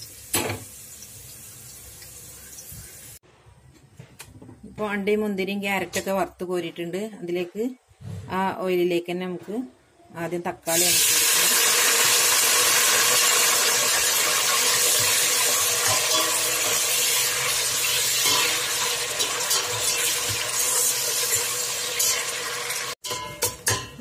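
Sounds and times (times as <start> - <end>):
tomatoes sizzling in hot oil: 0.0 - 3.2, 10.8 - 23.2.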